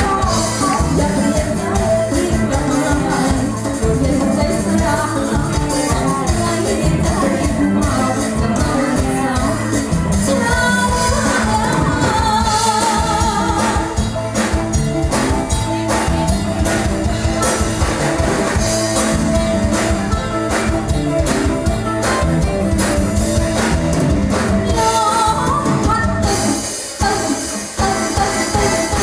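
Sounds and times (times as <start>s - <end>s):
woman singing into microphone: 0.0s - 14.2s, 24.7s - 29.0s
guitar: 0.0s - 29.0s
keyboard: 0.0s - 29.0s
steady drum beat: 0.0s - 29.0s.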